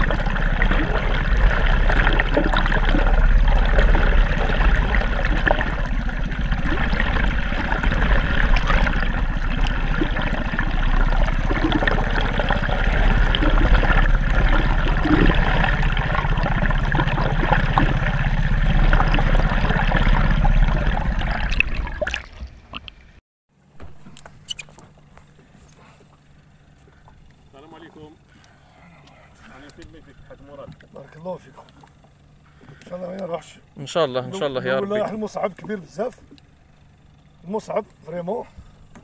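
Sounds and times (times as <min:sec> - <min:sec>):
low rumble: 0:00.0 - 0:23.2
water rushing and gurgling: 0:00.0 - 0:23.2
faint hum: 0:00.0 - 0:39.0.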